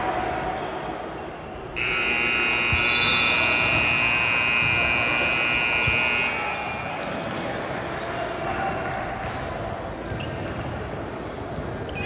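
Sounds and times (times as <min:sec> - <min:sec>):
scoreboard buzzer: 0:01.8 - 0:06.6.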